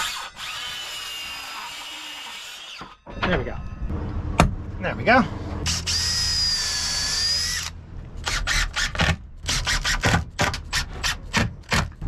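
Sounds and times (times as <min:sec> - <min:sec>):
drill motor whine: 0:00.0 - 0:03.0, 0:05.7 - 0:08.8.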